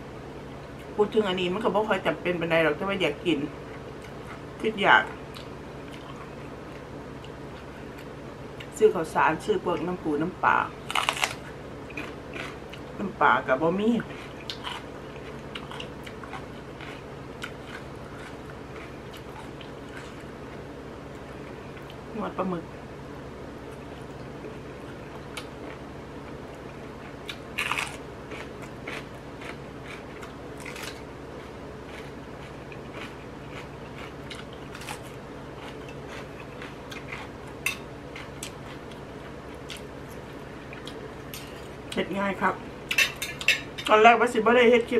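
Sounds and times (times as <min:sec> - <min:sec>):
low steady hum: 0:00.0 - 0:44.9
person chewing noodles: 0:10.9 - 0:12.9, 0:14.0 - 0:20.6, 0:23.7 - 0:41.7.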